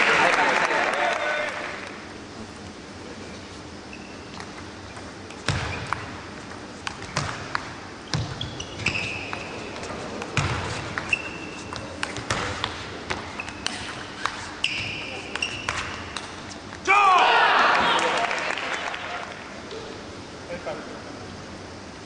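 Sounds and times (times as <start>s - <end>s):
shoes squeaking on floor: 3.4s - 7.3s, 8.0s - 16.7s.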